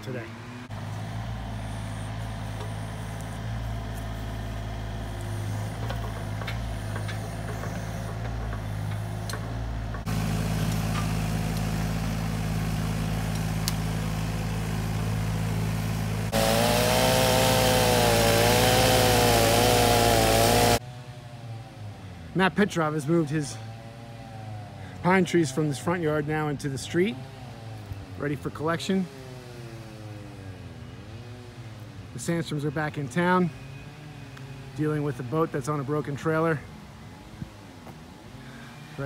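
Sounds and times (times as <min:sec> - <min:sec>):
excavator diesel engine running: 0:00.7 - 0:20.8.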